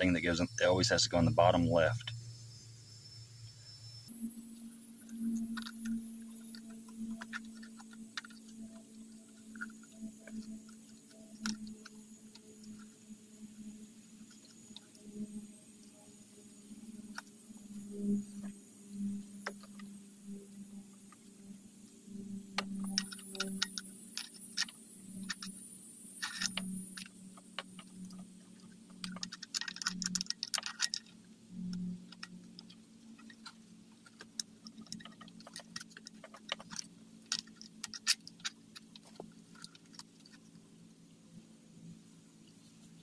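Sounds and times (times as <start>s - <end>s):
rustling clicks: 22.6s - 25.5s, 26.2s - 40.6s
plastic and metal parts knocking: 26.2s - 31.1s, 32.1s - 40.4s.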